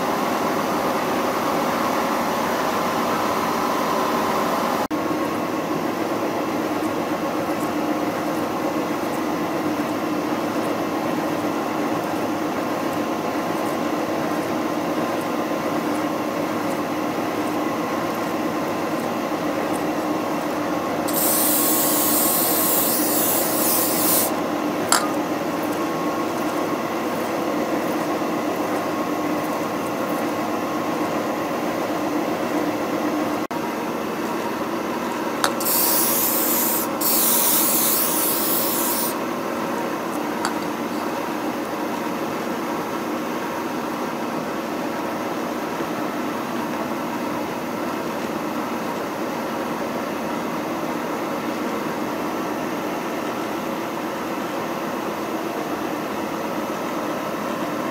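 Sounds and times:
milling machine whine: 0:15.3 - 0:31.8, 0:34.0 - 0:39.4
air blast hissing: 0:21.1 - 0:24.4, 0:35.5 - 0:39.2
cutter scraping metal: 0:21.1 - 0:25.1, 0:35.4 - 0:39.2.

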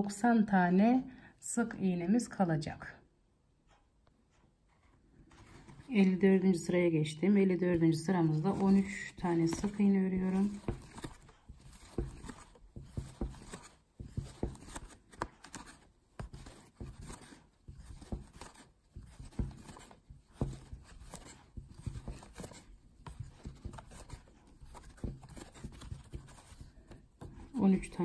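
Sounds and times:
crochet hook scraping and clicking: 0:07.7 - 0:27.6.

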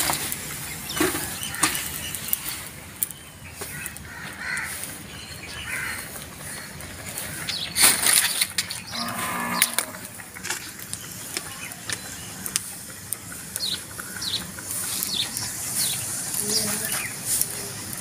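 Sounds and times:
farm animal call: 0:08.9 - 0:10.2.

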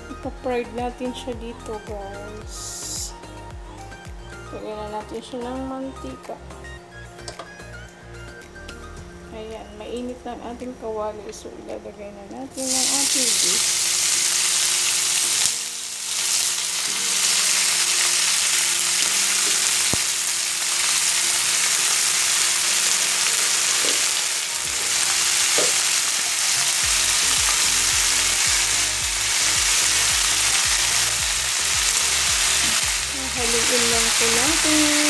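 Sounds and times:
meat sizzling in a frying pan: 0:12.6 - 0:35.0.

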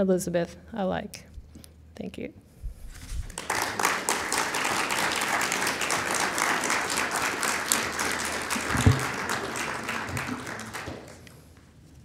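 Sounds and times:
audience applauding: 0:03.3 - 0:11.4.

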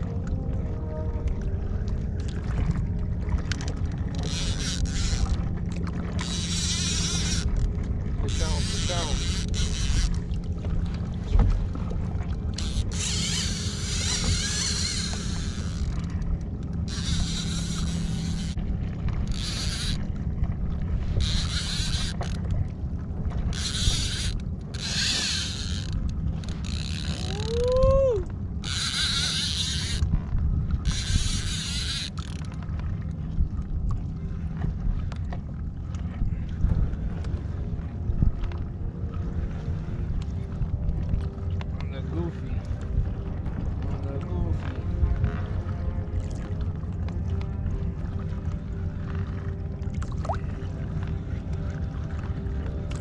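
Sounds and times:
water and wind rumble: 0:00.0 - 0:53.0
fishing reel buzzing: 0:04.1 - 0:05.5, 0:06.1 - 0:10.4, 0:12.5 - 0:16.2, 0:16.8 - 0:18.6, 0:19.2 - 0:20.1, 0:21.1 - 0:22.5, 0:23.4 - 0:30.1, 0:30.8 - 0:32.5.

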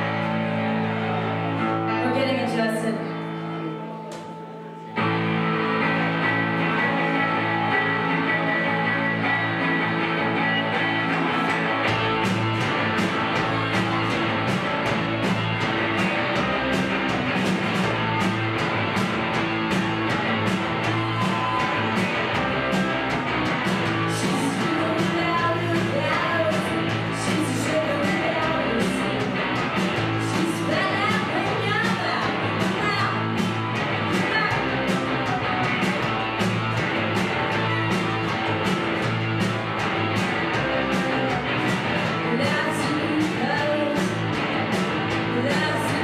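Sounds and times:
bass guitar: 0:00.0 - 0:46.0
electric guitars: 0:00.0 - 0:46.0
drum beat: 0:11.3 - 0:46.0.

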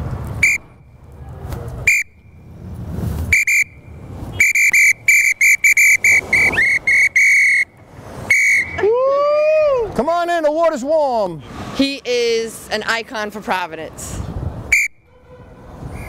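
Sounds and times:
low traffic rumble: 0:00.0 - 0:16.0
whistle blasts: 0:00.4 - 0:01.0, 0:01.8 - 0:02.4, 0:03.3 - 0:08.9, 0:14.7 - 0:15.3.

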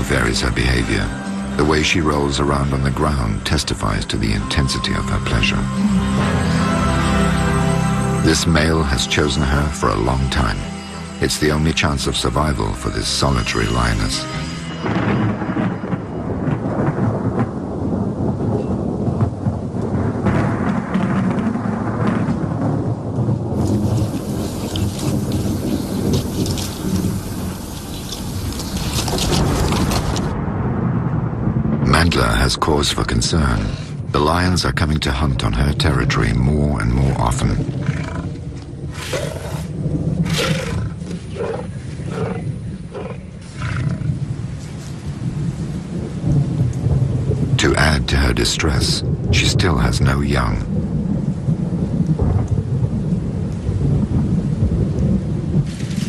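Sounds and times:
steady rain: 0:00.0 - 0:56.0
rolling thunder: 0:11.2 - 0:56.0
lion roaring: 0:37.5 - 0:44.3.

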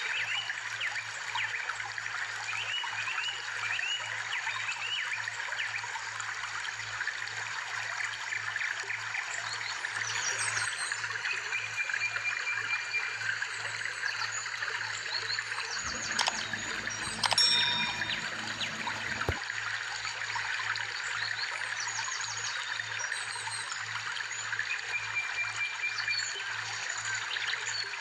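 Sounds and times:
sharp ringing click: 0:15.8 - 0:19.4
trickling water: 0:15.8 - 0:19.4.

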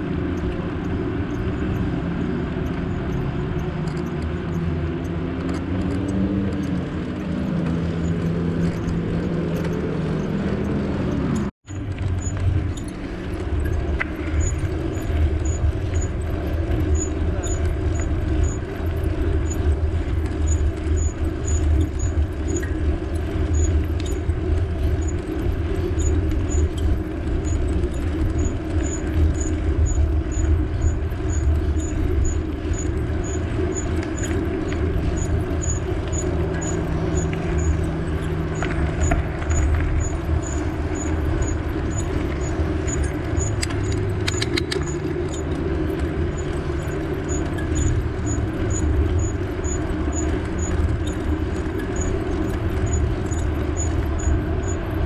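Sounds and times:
passing engine: 0:00.0 - 0:55.0
road traffic noise: 0:00.0 - 0:55.0
wind buffeting microphone: 0:00.0 - 0:55.0.

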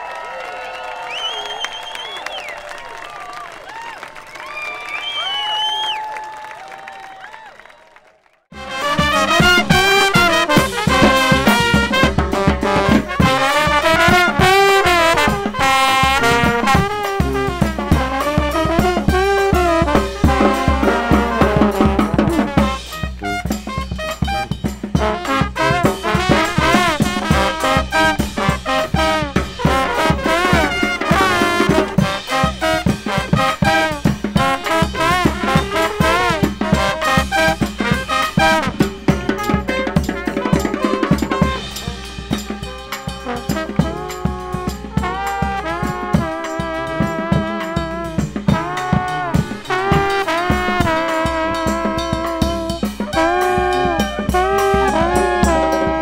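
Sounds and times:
trombones and trumpets melody: 0:08.5 - 0:56.0
snare and bass drum beating: 0:08.6 - 0:56.0
sousaphone bass line: 0:50.6 - 0:56.0.

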